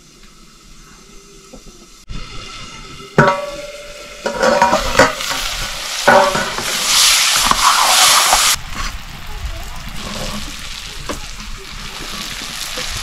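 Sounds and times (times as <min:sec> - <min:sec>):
food sizzling in a pan: 0:00.0 - 0:13.0
metal utensil clanking on pan: 0:03.2 - 0:07.7.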